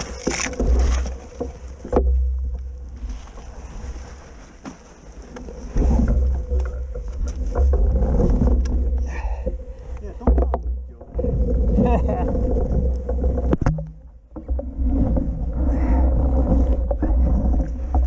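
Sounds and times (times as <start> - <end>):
deep rumble: 0.0 - 4.3, 5.2 - 18.0
scattered knocks: 10.0 - 11.4.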